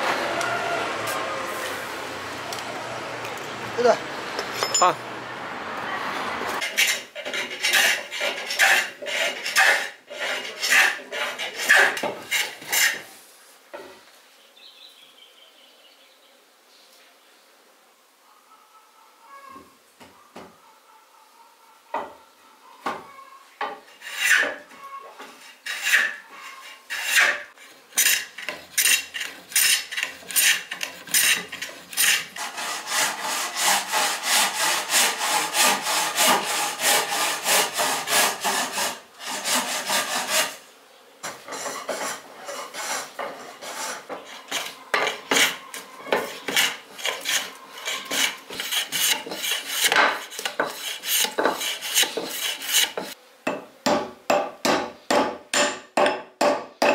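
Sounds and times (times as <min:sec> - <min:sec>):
bow saw cutting wood: 0:06.6 - 0:13.1, 0:23.9 - 0:24.6, 0:25.4 - 0:40.6, 0:41.2 - 0:53.2
drawknife shaving wood: 0:06.6 - 0:13.1, 0:25.5 - 0:40.6, 0:41.5 - 0:53.2.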